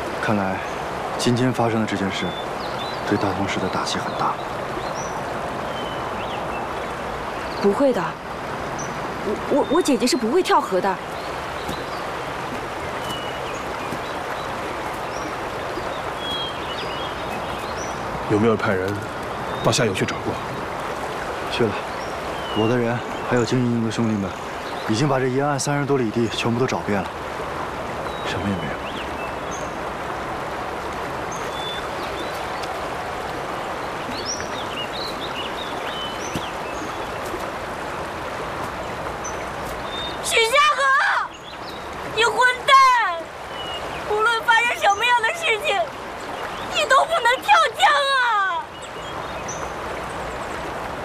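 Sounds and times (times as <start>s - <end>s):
river rushing: 0.0s - 51.0s.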